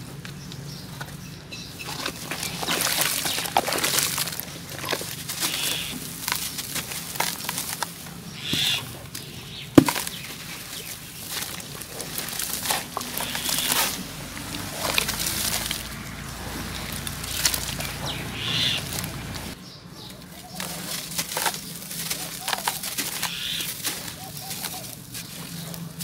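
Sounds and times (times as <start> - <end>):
muddy water sloshing: 0.9 - 19.6, 20.2 - 26.0
dirt pouring and splashing into water: 1.9 - 7.9, 9.8 - 19.6.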